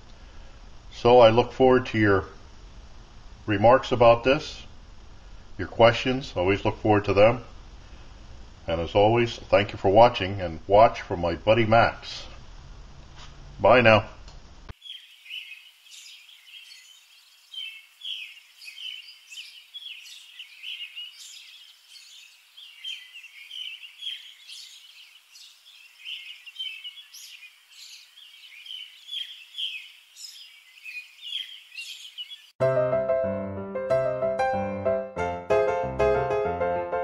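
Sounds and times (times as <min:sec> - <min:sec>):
small birds chirping: 0:14.7 - 0:32.6.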